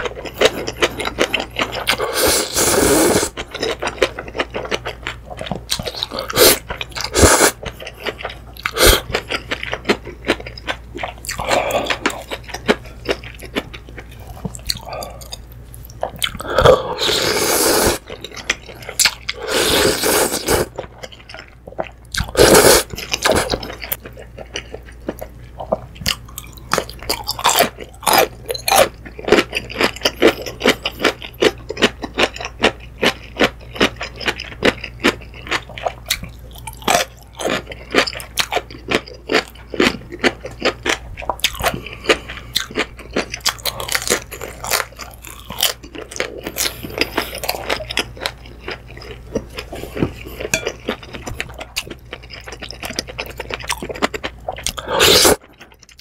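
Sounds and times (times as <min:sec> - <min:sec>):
noodle slurping: 0:01.9 - 0:03.4, 0:06.3 - 0:07.6, 0:16.9 - 0:18.0, 0:19.4 - 0:20.7
wet crunchy chewing: 0:03.3 - 0:56.0.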